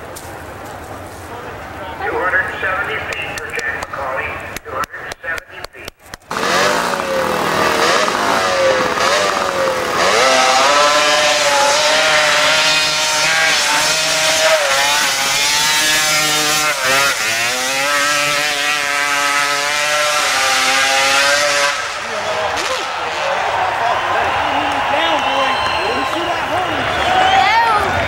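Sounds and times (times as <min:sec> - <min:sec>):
motorcycle engine revving: 0:06.1 - 0:27.0.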